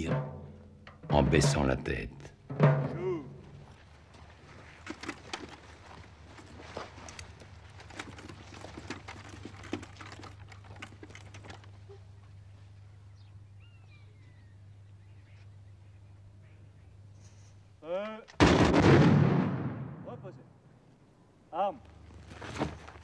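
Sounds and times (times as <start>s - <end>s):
muskets clicking and knocking: 0.0s - 12.0s
low steady hum: 0.0s - 17.8s.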